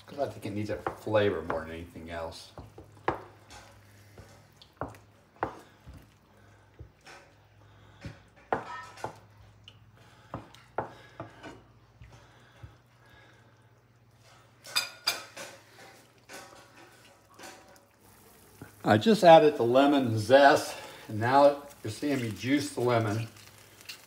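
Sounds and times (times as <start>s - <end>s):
wooden spoon knocking on skillet: 0.6s - 6.0s, 8.0s - 9.3s, 10.3s - 11.7s.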